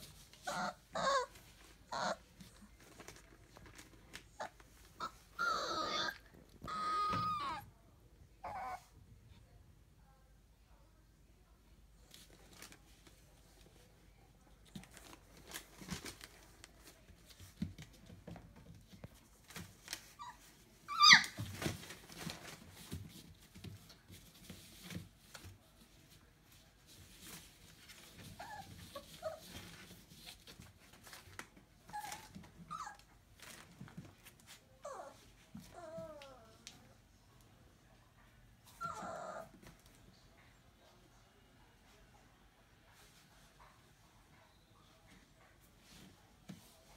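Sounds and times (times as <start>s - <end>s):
puppies whimpering and squeaking: 0.4s - 2.2s, 4.4s - 7.6s, 20.2s - 21.7s, 31.9s - 33.0s, 38.8s - 39.5s
puppy yelping: 0.5s - 2.2s, 4.4s - 7.6s, 20.2s - 21.4s.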